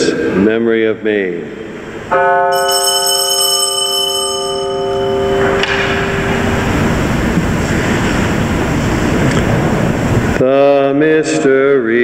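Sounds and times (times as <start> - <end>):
bell ringing: 2.4 - 7.2.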